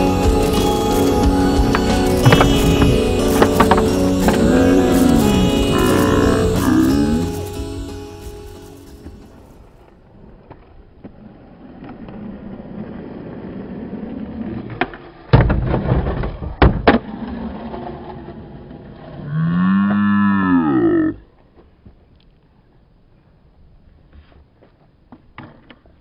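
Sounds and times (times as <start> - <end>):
skateboard wheels rolling on concrete: 0.0 - 20.0, 21.2 - 26.0
person shouting: 2.2 - 8.0
skateboard cracks and clatter: 9.8 - 19.2, 24.6 - 26.0.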